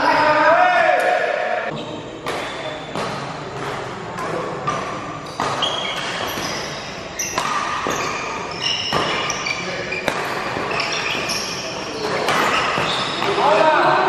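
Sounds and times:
court shoes squeaking: 1.7 - 14.0
rackets striking shuttlecock: 2.2 - 9.4, 10.0 - 13.6.

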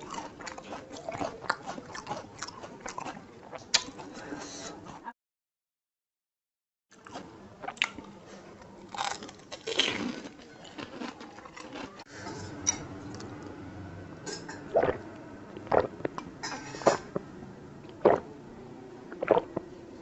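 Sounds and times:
crisp shells crunched and chewed: 8.9 - 12.0
gulps of water: 14.7 - 15.0, 15.6 - 16.2, 17.8 - 18.3, 19.1 - 19.6.

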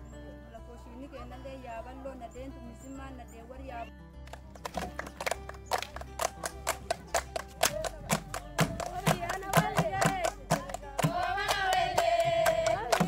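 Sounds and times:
rhythmic hand clapping: 4.2 - 13.0
women singing in unison: 8.9 - 13.0.

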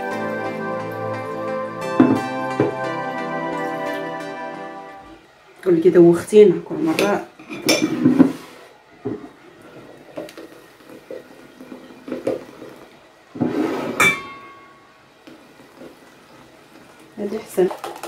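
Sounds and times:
juice pouring: 9.6 - 13.1.

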